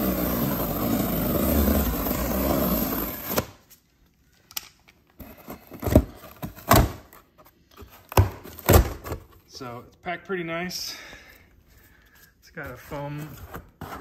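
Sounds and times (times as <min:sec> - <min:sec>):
blade scraping cardboard: 0:00.0 - 0:03.6, 0:12.6 - 0:14.0.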